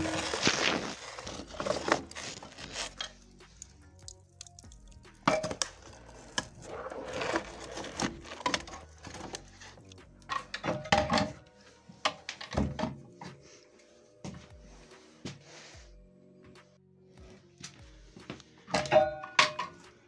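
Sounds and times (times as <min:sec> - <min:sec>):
metal clanking and scraping: 0:05.2 - 0:11.4, 0:18.7 - 0:19.8.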